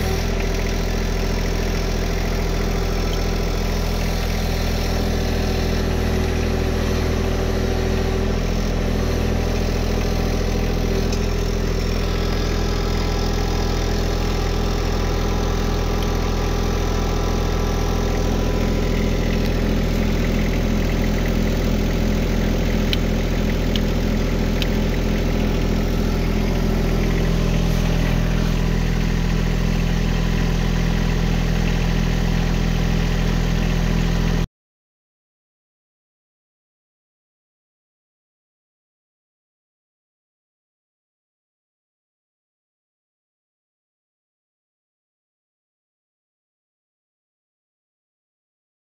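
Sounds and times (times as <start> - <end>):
tractor diesel engine idling: 0.0 - 34.5.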